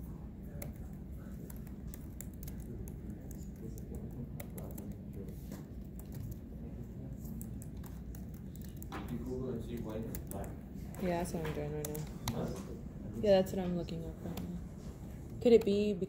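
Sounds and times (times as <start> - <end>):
low room hum: 0.0 - 16.0
keyboard typing clicks: 7.2 - 12.5.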